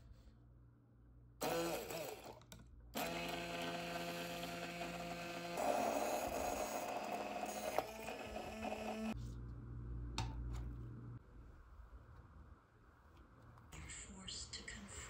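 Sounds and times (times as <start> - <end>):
immersion blender running: 1.4 - 2.4, 3.0 - 9.2.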